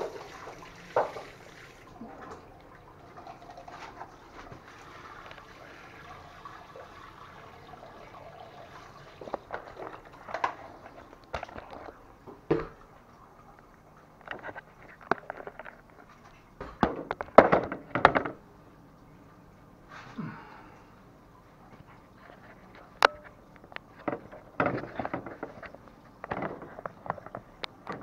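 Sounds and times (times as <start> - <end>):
faint steady hiss: 0.0 - 28.0
sharp knocks and clatters: 16.6 - 18.4, 24.0 - 28.0.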